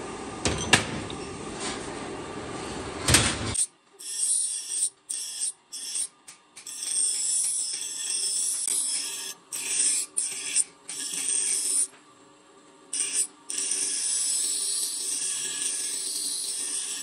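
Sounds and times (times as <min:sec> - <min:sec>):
bench grinder grinding steel: 0:04.0 - 0:11.9, 0:12.9 - 0:17.0.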